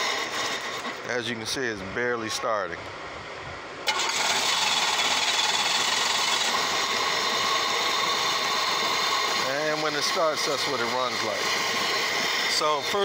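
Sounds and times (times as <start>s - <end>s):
engine cranking and misfiring: 3.8s - 13.0s.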